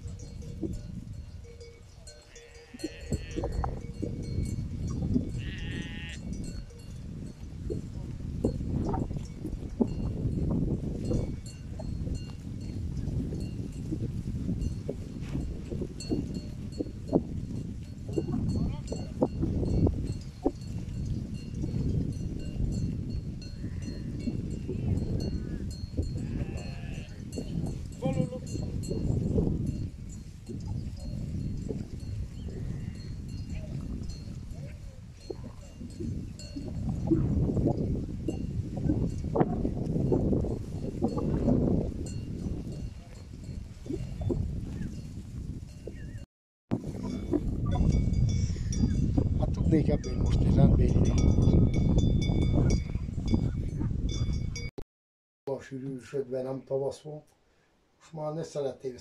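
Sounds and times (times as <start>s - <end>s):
small bells tinkling: 0.0s - 5.4s, 6.2s - 7.4s, 50.8s - 54.7s
sheep bleating: 2.3s - 3.7s, 5.3s - 6.3s, 26.2s - 27.2s.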